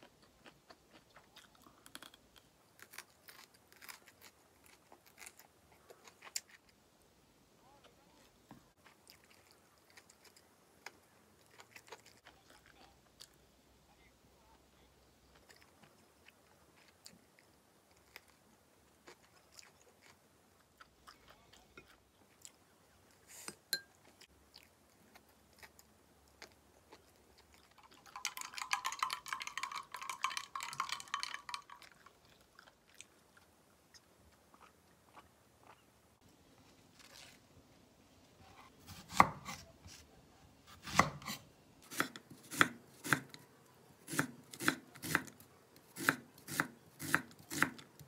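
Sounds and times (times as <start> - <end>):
soft chewing: 0.0 - 6.9, 7.6 - 38.9
ice rattling in a glass: 28.0 - 31.9.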